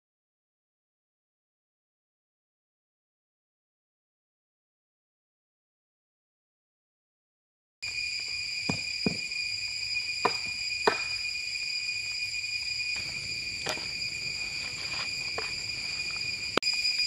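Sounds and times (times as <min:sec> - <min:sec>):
insect chorus: 0:07.8 - 0:17.0.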